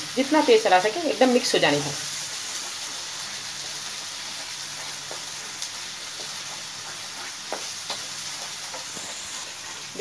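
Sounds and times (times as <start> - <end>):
gravy sizzling in a frying pan: 0.0 - 10.0
wooden spatula stirring: 2.2 - 10.0.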